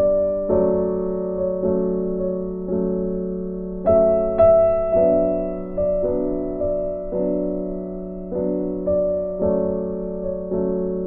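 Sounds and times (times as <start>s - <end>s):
gentle piano music: 0.0s - 11.0s.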